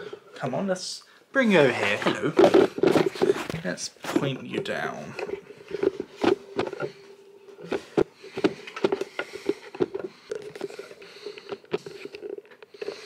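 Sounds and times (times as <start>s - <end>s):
camera handling bumps and taps: 2.1s - 4.6s, 5.2s - 7.0s, 7.6s - 12.7s.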